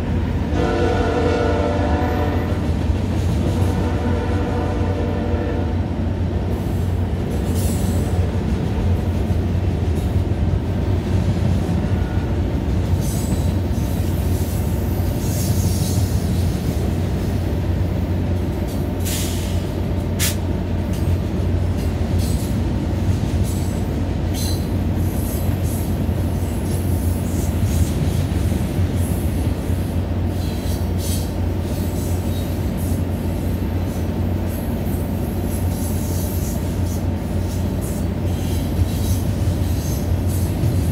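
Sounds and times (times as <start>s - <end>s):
diesel locomotive engine drone: 0.0s - 40.9s
train wheel squeals: 6.6s - 8.2s, 12.9s - 17.4s, 21.8s - 22.6s, 23.4s - 28.3s, 29.0s - 40.9s.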